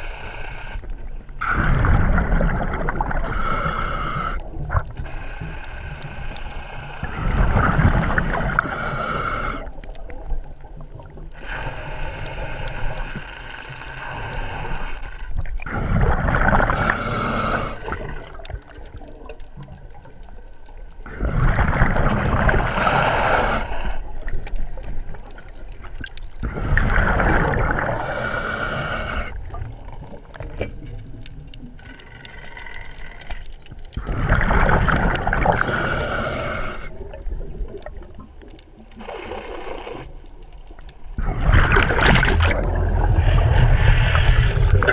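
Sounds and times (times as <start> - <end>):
diver breathing through regulator: 0.0 - 0.9, 3.1 - 9.9, 11.3 - 18.6, 21.6 - 24.9, 26.4 - 30.5, 31.8 - 37.2, 38.9 - 40.3, 41.2 - 44.9
rush of bubbles: 1.4 - 5.2, 7.0 - 12.0, 14.1 - 20.0, 21.0 - 32.4, 34.0 - 44.9.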